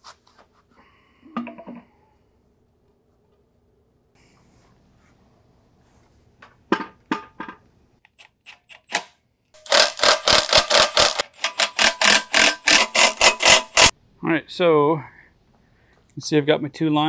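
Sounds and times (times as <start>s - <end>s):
metallic ratchet clicks: 9.6s - 13.9s.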